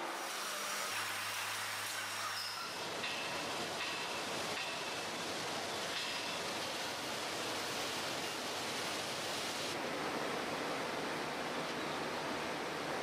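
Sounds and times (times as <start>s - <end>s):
steady rushing outdoor noise: 2.8s - 13.0s.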